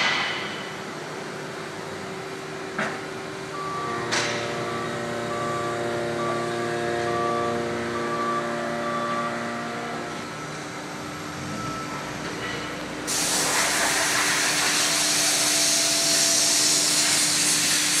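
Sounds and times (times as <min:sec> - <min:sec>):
workshop machinery hum: 0:00.0 - 0:18.0
loud steady hiss: 0:13.1 - 0:18.0.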